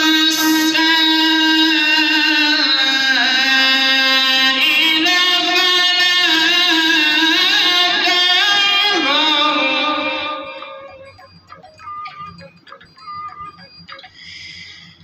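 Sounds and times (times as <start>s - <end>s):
man reciting melodically: 0.0s - 13.9s.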